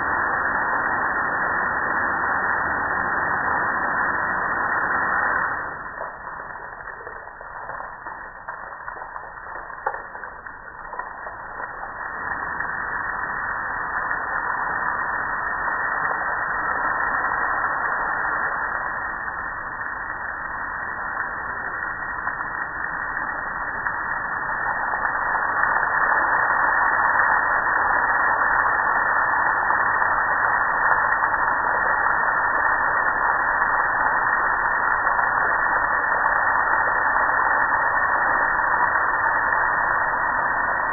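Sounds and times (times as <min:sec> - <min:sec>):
water spraying over metal grill: 0:05.8 - 0:13.4.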